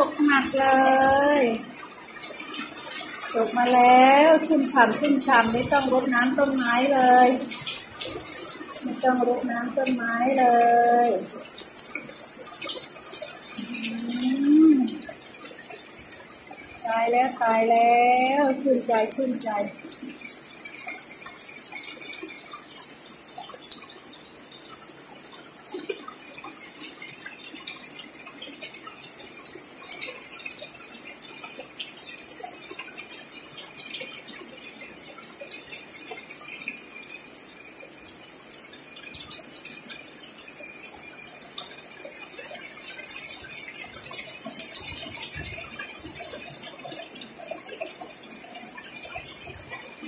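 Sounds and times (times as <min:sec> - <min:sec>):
heavy rain on leaves and pots: 0:00.0 - 0:50.0.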